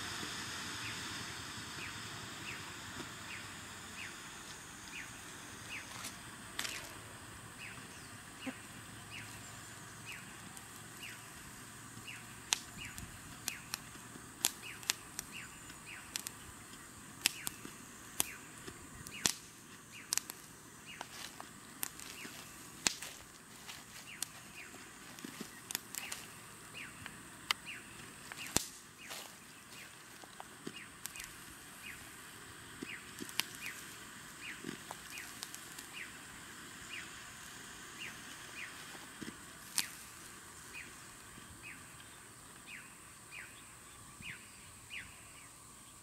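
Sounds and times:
faint steady hiss: 0.0 - 46.0
sharp clicks and snaps: 12.4 - 23.2, 25.2 - 26.3, 28.3 - 28.8, 30.3 - 31.4, 32.8 - 33.9, 34.6 - 35.9.

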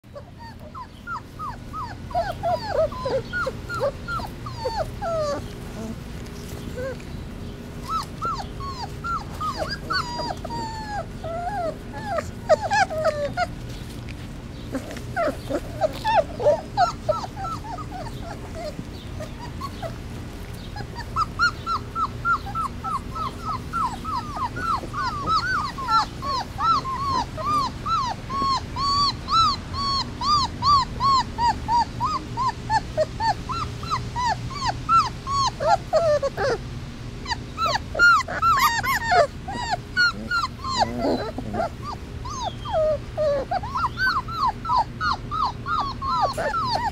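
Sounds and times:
puppies crying and whimpering: 0.0 - 46.9.

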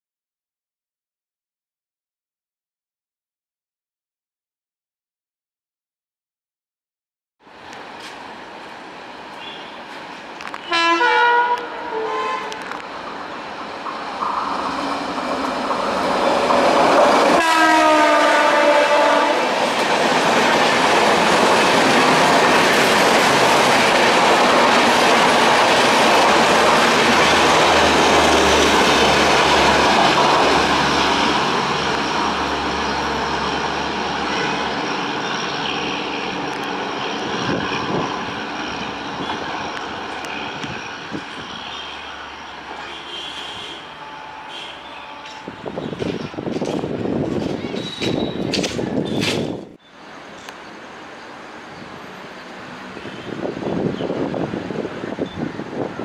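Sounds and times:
locomotive horn: 10.6 - 12.7, 17.3 - 19.6, 34.1 - 34.8, 42.8 - 45.8
train wheels clickety-clack: 13.8 - 17.4, 45.2 - 49.7.

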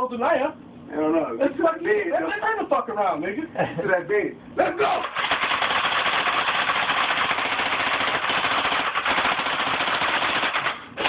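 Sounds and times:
rifle firing rapid burst: 5.0 - 11.0.

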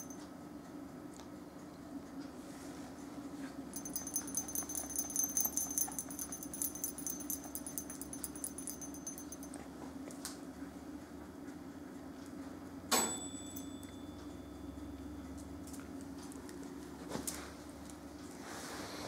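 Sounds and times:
dog collar tags jingling: 3.8 - 9.6.

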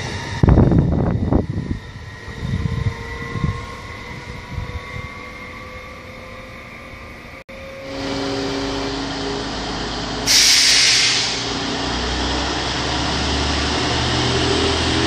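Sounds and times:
wind gusts on microphone: 0.0 - 5.6
electric train running noise: 0.0 - 15.0.

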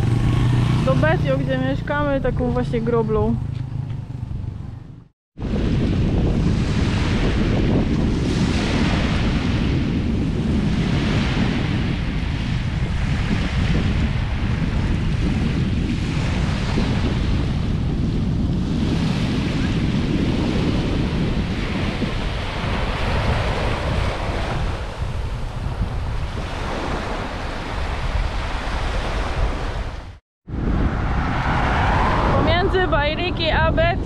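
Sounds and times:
wind buffeting microphone: 0.0 - 34.0
ocean surf: 20.6 - 33.6.

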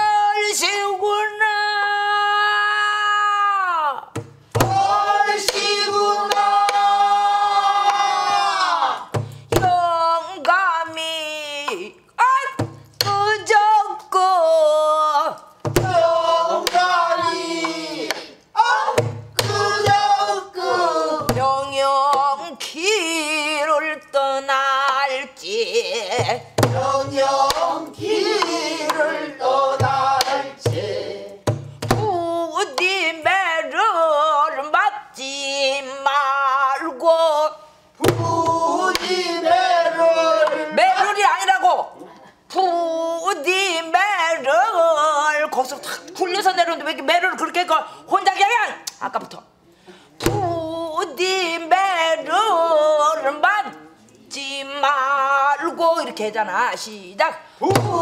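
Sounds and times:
woman singing with wide vibrato: 0.0 - 8.4, 9.5 - 41.4, 42.5 - 45.9, 50.2 - 58.0
deep barrel drum beats: 4.2 - 5.5, 9.2 - 9.9, 15.7 - 17.4, 19.0 - 20.2, 21.2 - 21.8, 26.2 - 29.1, 29.7 - 32.3, 38.0 - 39.0, 50.2 - 50.8, 57.6 - 58.0.

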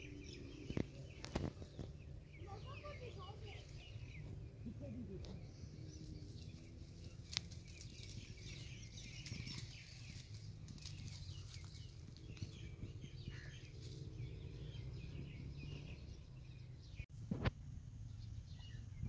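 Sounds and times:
small birds chirping: 0.0 - 17.4, 18.0 - 19.0
animal rustling through dry twigs: 5.9 - 12.7, 13.3 - 14.2.

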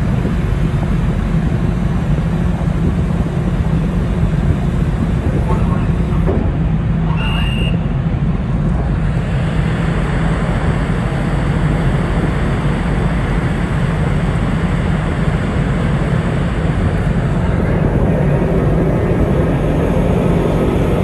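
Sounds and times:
ferry machinery drone: 0.0 - 21.0
short high whistle or beep: 7.1 - 7.8.

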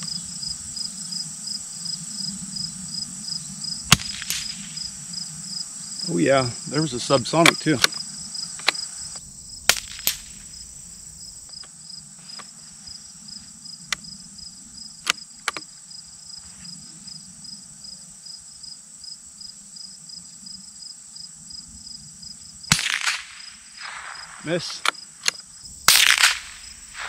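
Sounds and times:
insects trilling and chirping: 0.0 - 27.0
sharp clicks: 3.9 - 4.7, 7.3 - 10.5, 15.0 - 15.7, 22.7 - 27.0.

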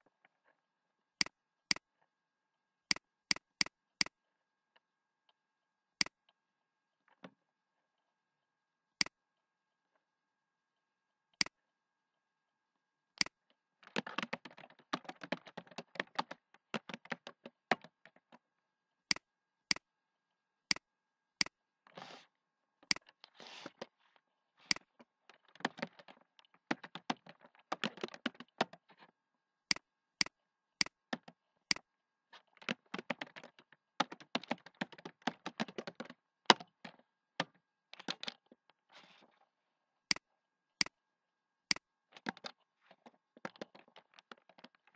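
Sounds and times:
typing on keyboard: 13.2 - 18.4, 24.7 - 28.9, 29.7 - 31.8, 32.5 - 38.4, 41.7 - 42.6, 43.4 - 44.9.

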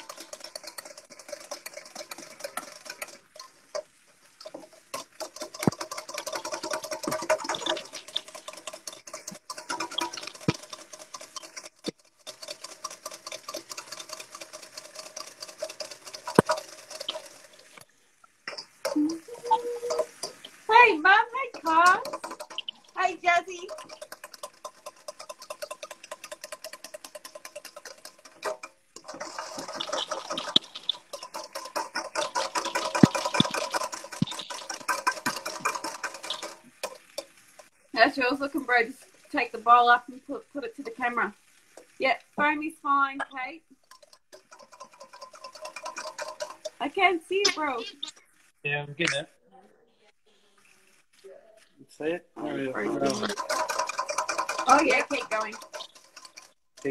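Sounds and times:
whisk knocking against bowl: 0.0 - 17.8, 21.4 - 37.7, 43.8 - 46.8, 53.2 - 56.9
wire whisk scraping metal bowl: 0.0 - 17.8, 18.5 - 42.0, 43.8 - 48.2, 52.6 - 56.9.

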